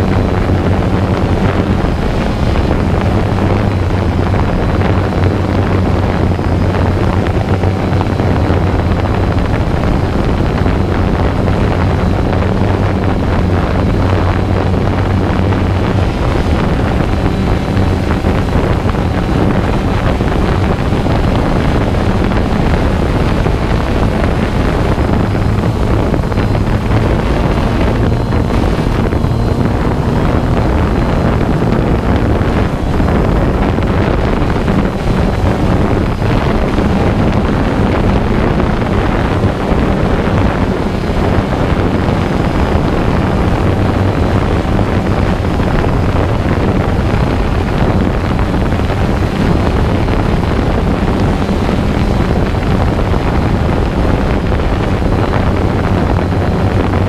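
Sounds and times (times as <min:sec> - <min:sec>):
drone motors buzzing: 0:00.0 - 0:44.0
wind noise on microphone: 0:00.0 - 0:57.0.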